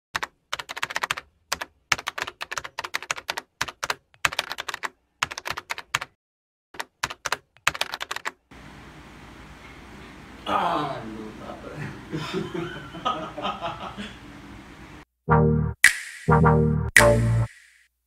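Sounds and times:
keyboard keys clicking: 0.2s - 6.1s, 6.8s - 8.4s.

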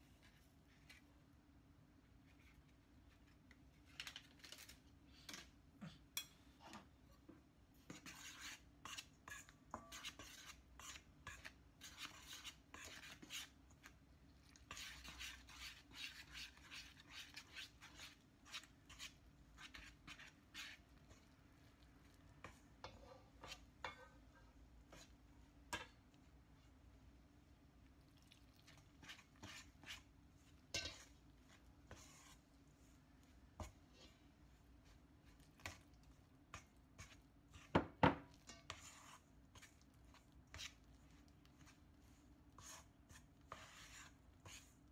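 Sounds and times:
utensil scraping a metal bowl: 7.9s - 13.9s, 14.5s - 21.3s, 22.4s - 25.9s, 28.6s - 32.4s, 36.5s - 40.8s, 42.5s - 44.8s.

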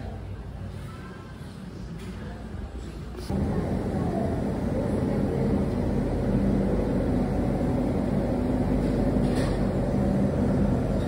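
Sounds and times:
low mechanical drone: 3.3s - 11.0s.

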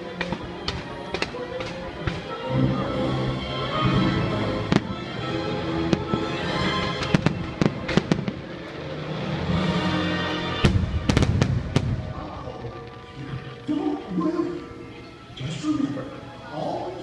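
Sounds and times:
music: 0.0s - 17.0s
fireworks bangs: 4.7s - 5.2s, 5.9s - 9.5s, 10.5s - 13.0s.

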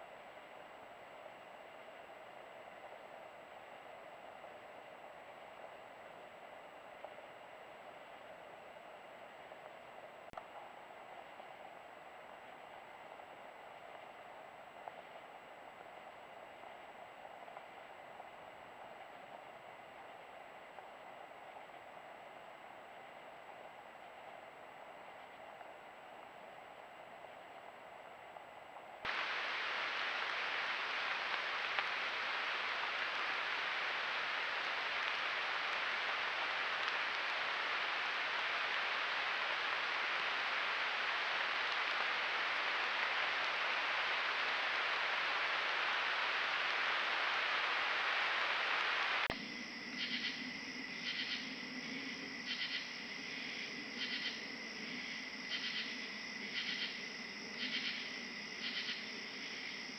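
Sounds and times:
loud steady hiss: 29.1s - 59.9s
night insect chorus: 29.1s - 59.9s.

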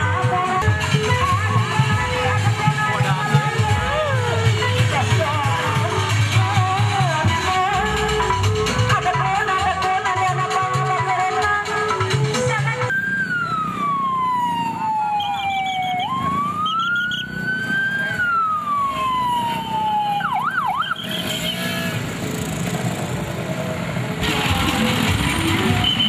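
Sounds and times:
traffic noise: 0.0s - 26.0s
police siren wailing: 12.4s - 21.8s
crowd noise: 21.0s - 26.0s.

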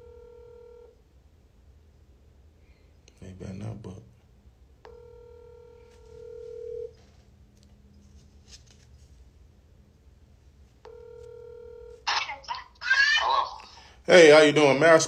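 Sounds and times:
telephone ringback tone: 0.0s - 0.9s, 4.9s - 7.0s, 10.9s - 12.0s.

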